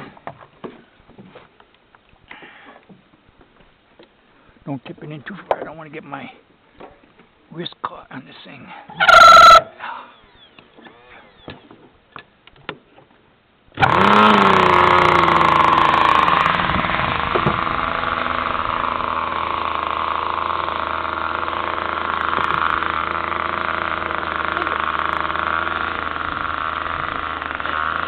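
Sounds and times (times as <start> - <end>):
electric starter: 13.8 - 28.0
model plane engine running: 13.8 - 28.0.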